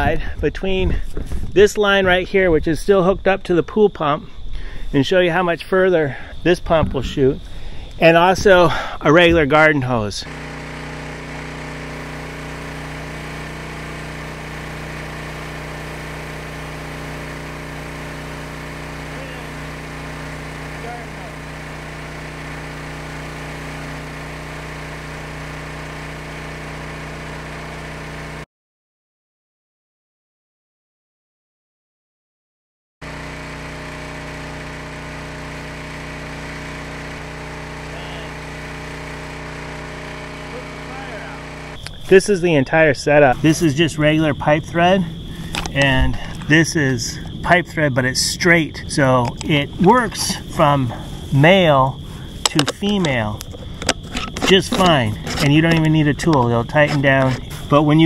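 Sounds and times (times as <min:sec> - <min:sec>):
gasoline engine driving water pump: 0:06.4 - 0:28.4, 0:33.0 - 0:58.0
water spraying from a hose nozzle: 0:10.3 - 0:27.3.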